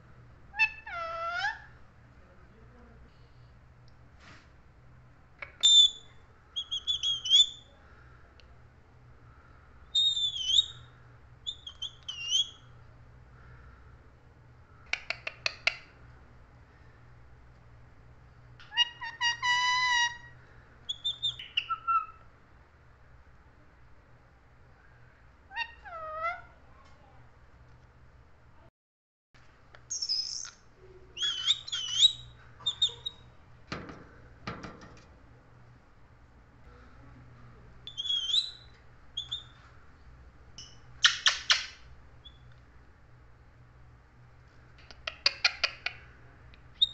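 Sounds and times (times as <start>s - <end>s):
parakeet chirps: 5.4s - 7.7s, 9.9s - 12.6s, 20.9s - 22.2s, 29.9s - 30.6s, 31.2s - 33.3s, 37.9s - 39.6s, 40.6s - 42.5s
parakeet whistling: 5.6s - 7.6s, 10.0s - 10.8s, 20.9s - 22.2s, 31.2s - 33.2s, 37.9s - 39.5s.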